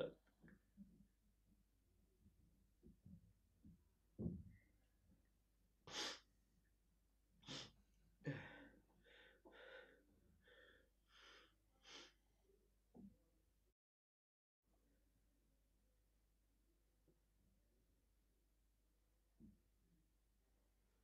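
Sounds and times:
man breathing and gasping: 0:07.5 - 0:12.2.

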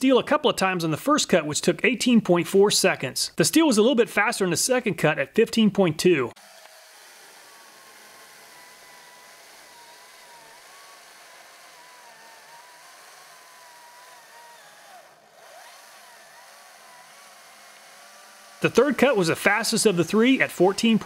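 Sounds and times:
cordless chainsaw cutting wood: 0:06.3 - 0:21.0.

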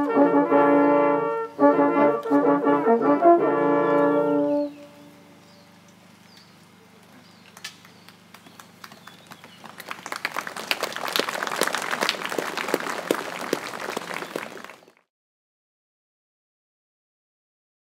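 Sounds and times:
crowd applauding: 0:07.5 - 0:15.1.

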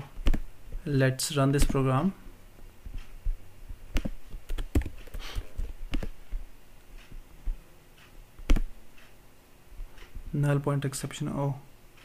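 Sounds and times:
keyboard and mouse clicks: 0:00.1 - 0:00.5, 0:03.9 - 0:06.4, 0:08.0 - 0:09.1.

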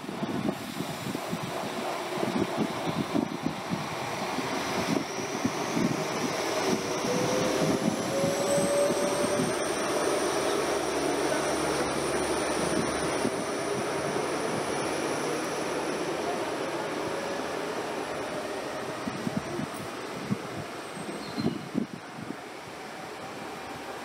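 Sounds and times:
rising whine: 0:04.5 - 0:16.0.

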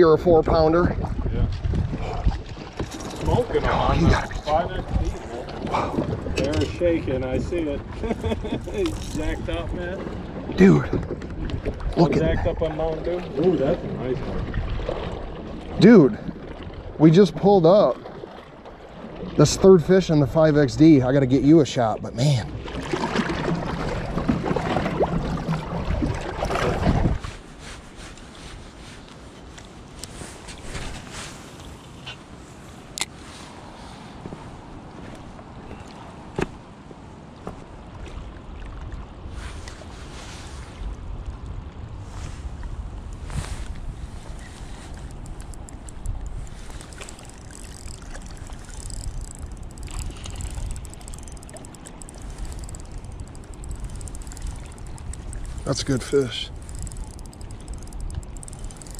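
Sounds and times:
wind noise on microphone: 0:00.2 - 0:12.7, 0:13.8 - 0:15.3, 0:23.2 - 0:28.8, 0:39.2 - 0:58.9
water splashing: 0:00.9 - 0:19.9, 0:22.2 - 0:28.3, 0:42.1 - 0:58.9.

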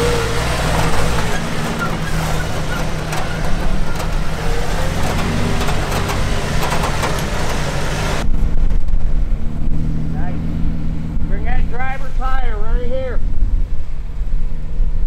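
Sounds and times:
clicks and knocks of tyres on rock: 0:00.0 - 0:08.3
engine running at crawling speed: 0:00.0 - 0:15.0.

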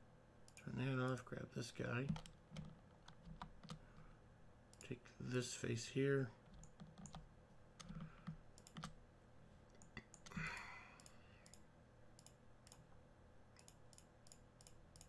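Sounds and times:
computer mouse clicks: 0:00.5 - 0:01.2, 0:02.0 - 0:03.8, 0:06.5 - 0:09.0, 0:09.7 - 0:12.8, 0:13.6 - 0:15.0.

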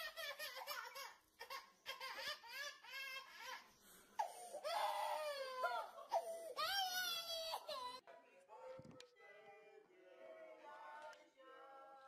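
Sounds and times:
toddler crying: 0:00.0 - 0:08.0.

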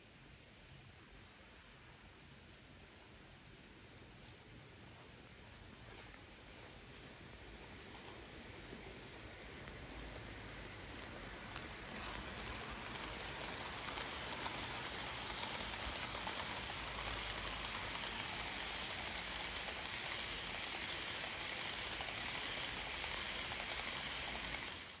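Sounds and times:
model train wheels clattering: 0:07.1 - 0:25.0.

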